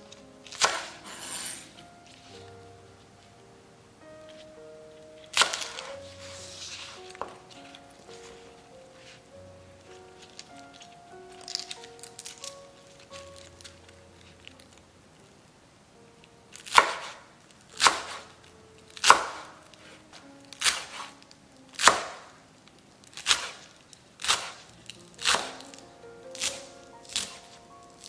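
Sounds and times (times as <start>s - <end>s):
knife chopping on wooden board: 0.5s - 1.6s, 5.4s - 5.9s, 16.7s - 17.2s, 17.8s - 18.2s, 19.0s - 19.5s, 20.6s - 21.1s, 21.8s - 22.2s, 23.2s - 24.6s, 25.2s - 25.6s.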